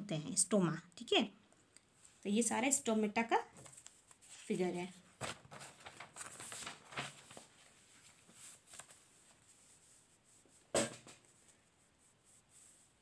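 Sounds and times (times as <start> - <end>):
notebook pages rustling: 3.5 - 13.0
sharp rustle or knock: 10.7 - 11.3.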